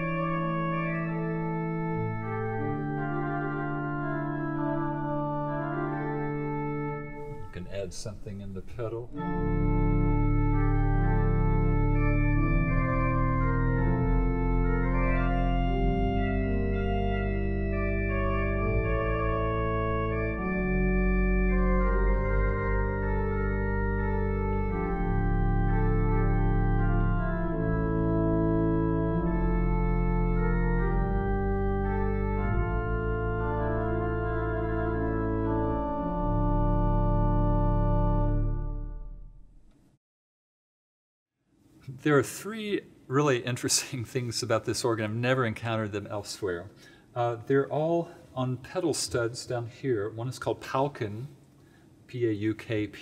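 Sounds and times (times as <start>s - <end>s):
deep organ pedal bass: 0.0s - 39.7s
pipe organ chords: 0.0s - 39.7s.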